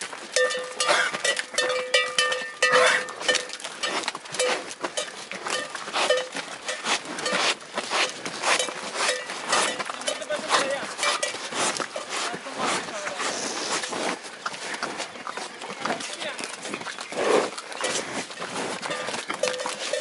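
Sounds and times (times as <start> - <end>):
cow bells clanking: 0.0 - 13.0, 15.1 - 20.0
hooves clopping on concrete: 0.0 - 20.0.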